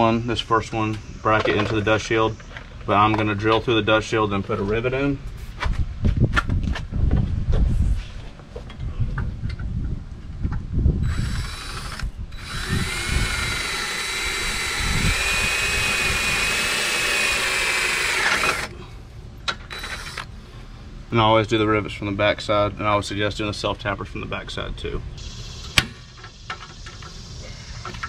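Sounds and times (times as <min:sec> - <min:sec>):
cordless drill whining: 0:11.0 - 0:18.7, 0:19.6 - 0:20.3.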